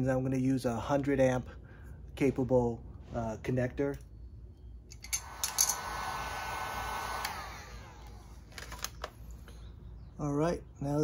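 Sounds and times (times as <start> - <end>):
heat gun fan whirring: 4.9 - 9.7
heat gun switch clicks: 7.0 - 7.4.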